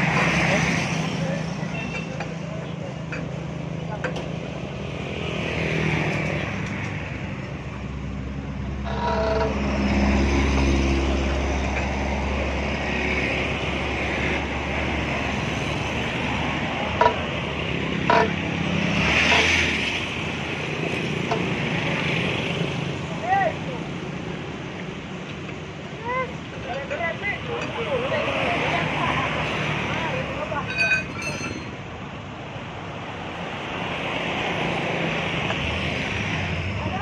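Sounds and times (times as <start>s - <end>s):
road traffic: 0.0s - 37.0s
vehicle rumbling past: 4.4s - 23.1s
sharp metal knocks: 16.9s - 20.0s, 20.8s - 21.8s.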